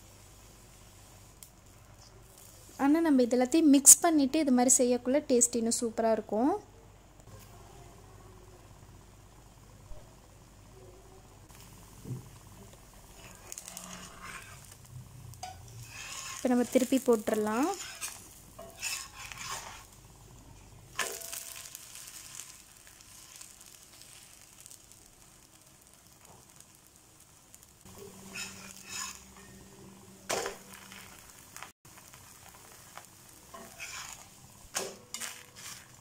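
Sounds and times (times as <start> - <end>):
dosa sizzling on a pan: 0.0 - 4.0, 7.2 - 36.0
spatula scraping a pan: 13.0 - 14.8, 15.4 - 20.0, 21.0 - 24.8, 27.6 - 36.0.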